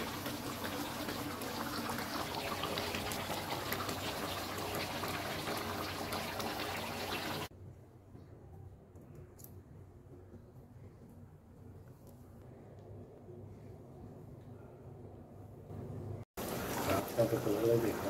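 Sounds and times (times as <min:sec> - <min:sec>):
curry bubbling and sizzling: 0:00.0 - 0:07.5, 0:16.4 - 0:18.0.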